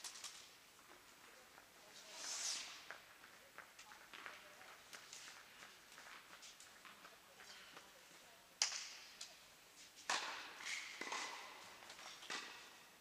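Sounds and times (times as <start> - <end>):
tennis balls struck by racquets: 8.6 - 9.2, 10.0 - 13.0.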